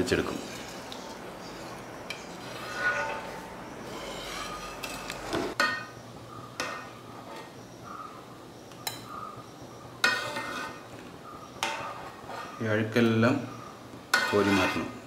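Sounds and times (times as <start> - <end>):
metal utensils clinking on pan: 10.0 - 10.8, 14.1 - 14.9.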